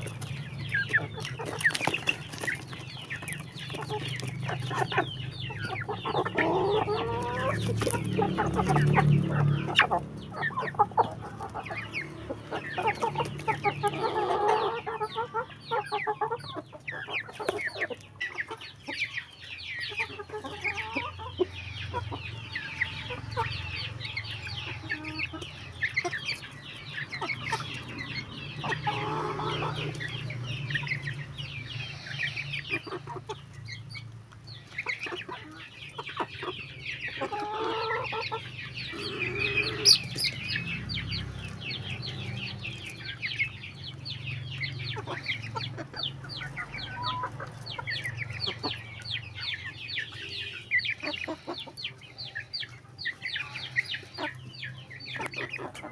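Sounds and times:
beaks tapping: 0.0 - 6.3
chickens clucking: 0.0 - 55.9.

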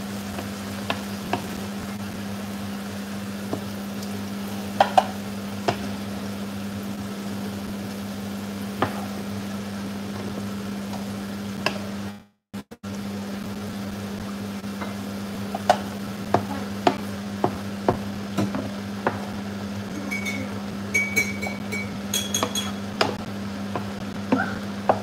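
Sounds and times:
wooden spatula tapping a pan: 4.8 - 5.9, 14.8 - 19.3
utensil clinking on pan: 20.1 - 22.8.

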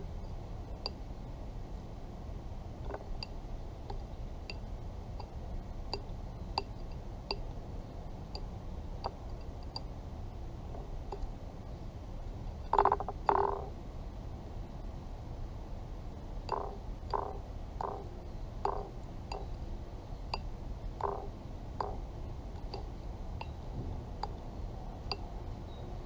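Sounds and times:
beak clicking on clay dish: 16.5 - 19.6, 20.3 - 23.6.

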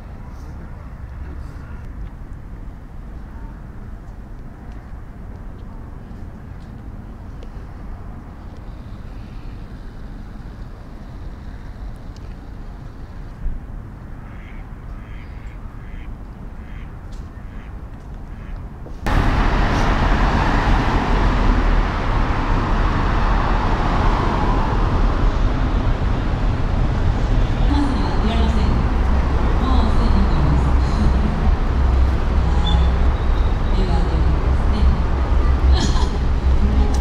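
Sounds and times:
road traffic: 0.0 - 37.0
ducks quacking: 14.3 - 16.9.

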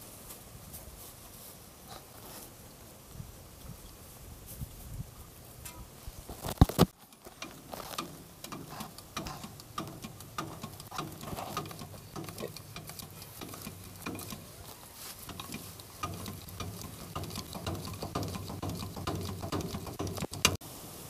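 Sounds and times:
hand tool clicking and scraping: 6.5 - 20.6.

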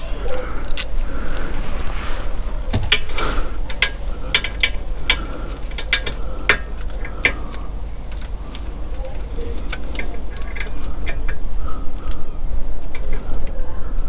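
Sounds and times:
ratchet wrench clicking: 2.7 - 13.3.

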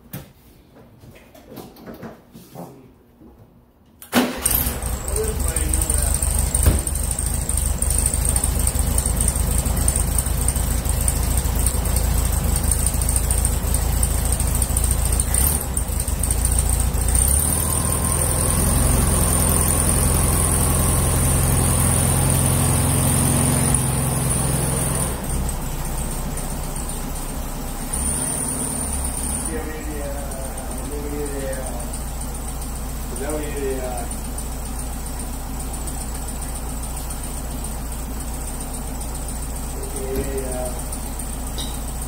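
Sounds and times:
car engine running: 4.4 - 42.0.

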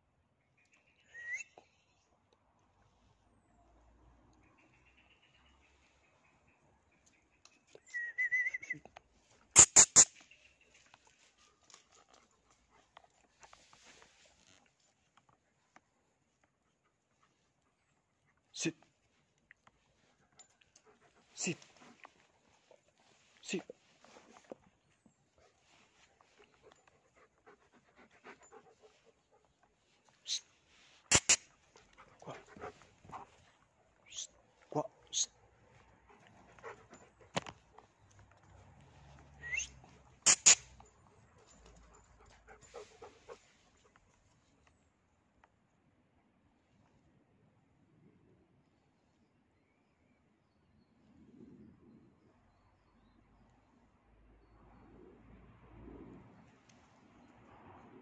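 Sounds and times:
dog panting: 25.4 - 33.6, 35.7 - 38.8, 39.9 - 44.1.

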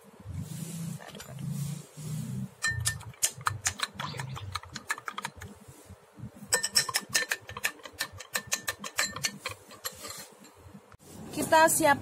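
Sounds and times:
spoon clinking in a glass: 6.5 - 10.0.

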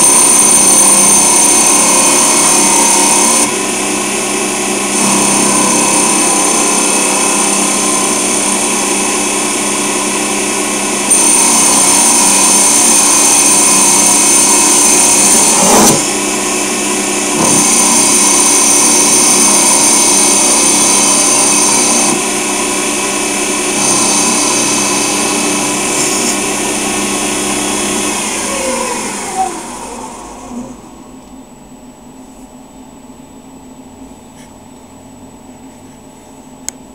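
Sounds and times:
lathe spindle motor whine: 0.0 - 31.6
high-pitched whine: 0.0 - 31.7.

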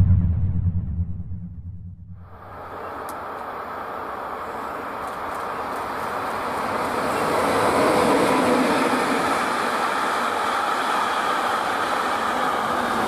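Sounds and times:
freight train wheels rolling: 2.6 - 13.0.

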